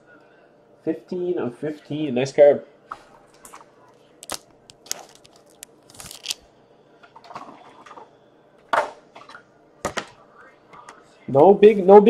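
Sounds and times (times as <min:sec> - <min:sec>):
cards and packaging rustling: 0:04.2 - 0:06.4.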